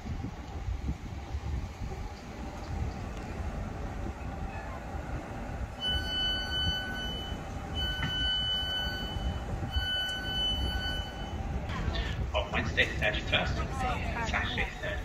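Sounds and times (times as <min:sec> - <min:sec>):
low rumble of standing train: 0:00.0 - 0:15.0
train door warning beeps: 0:05.7 - 0:11.7.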